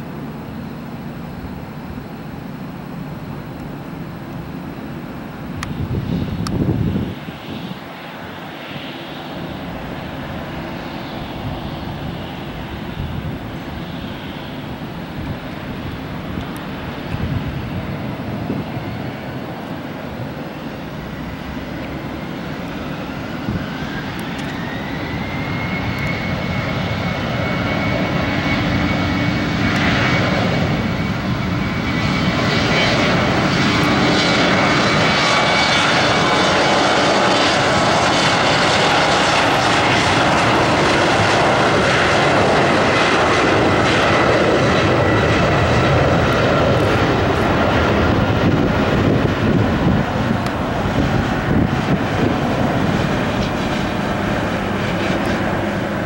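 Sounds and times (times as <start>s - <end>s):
jet engines spooling up: 0.0s - 56.0s.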